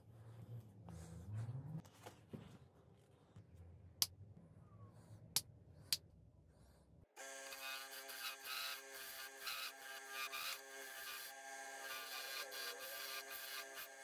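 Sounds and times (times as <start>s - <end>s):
wood lathe humming: 7.2s - 14.0s
turning tool scraping wood: 7.3s - 14.0s.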